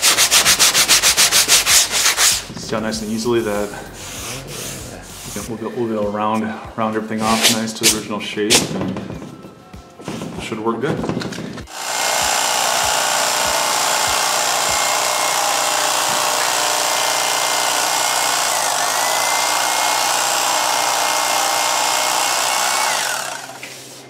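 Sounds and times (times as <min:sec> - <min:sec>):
electric knife sawing foam: 0:00.0 - 0:02.5, 0:11.7 - 0:24.0.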